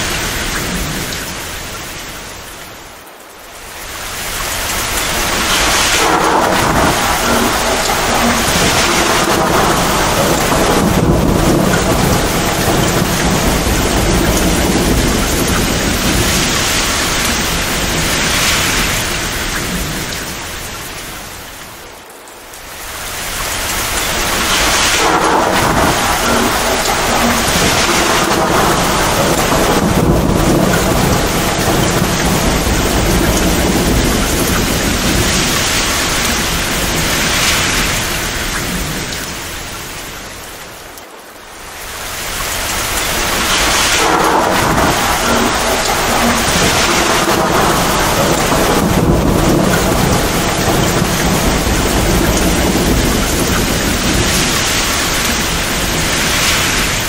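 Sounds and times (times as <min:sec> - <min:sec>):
heavy rain: 0:00.0 - 0:57.0
rumbling thunder: 0:04.1 - 0:21.2, 0:23.1 - 0:40.2, 0:42.2 - 0:57.0.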